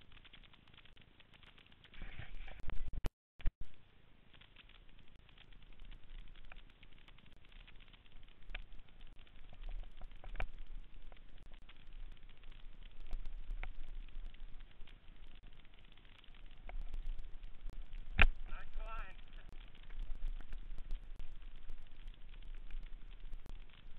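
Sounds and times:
clicks and knocks over bumps: 0.0 - 23.9
bike tyres running over dirt: 3.7 - 23.9
low rumble: 8.3 - 23.9.

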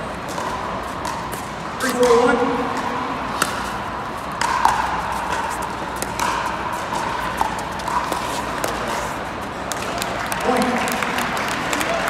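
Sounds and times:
paddles hitting plastic ball: 4.3 - 8.9.

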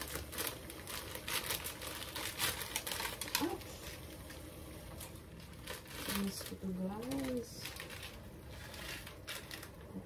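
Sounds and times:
plastic packet crinkling: 0.0 - 10.0.

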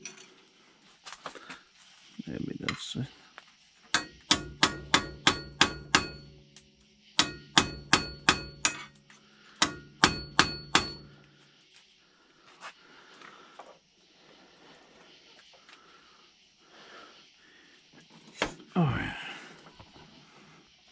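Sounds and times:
hammer striking steel: 3.9 - 6.6, 7.2 - 11.3.

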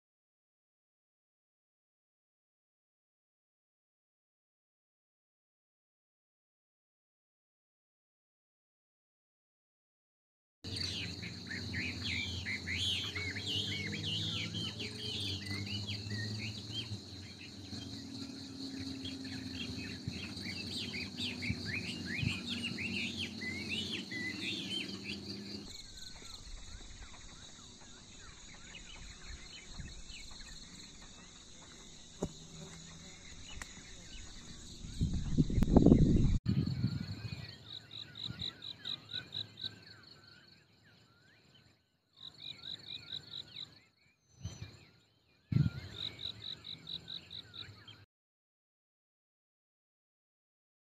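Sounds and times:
insects buzzing: 10.7 - 36.4
birds chirping: 10.7 - 48.1.

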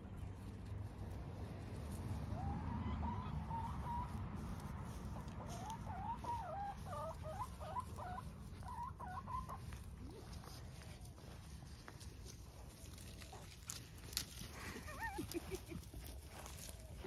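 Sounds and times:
hen clucking: 2.1 - 11.1.

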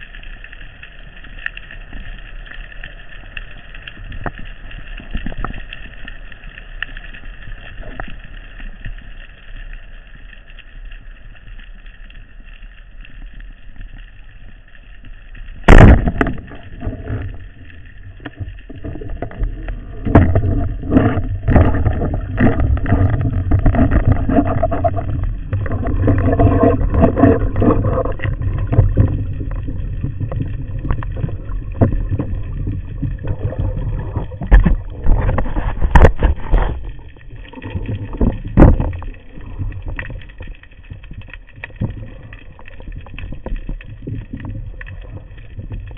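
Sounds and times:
churning water: 15.6 - 45.9.

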